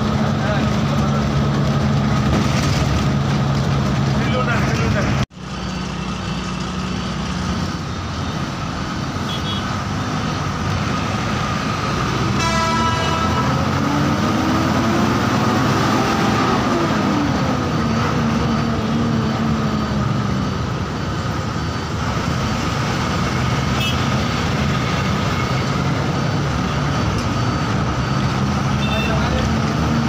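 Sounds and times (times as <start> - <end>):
bus engine and road noise: 0.0 - 30.0
bus horn toot: 9.2 - 9.8, 12.3 - 13.8, 23.8 - 24.2, 28.7 - 29.3.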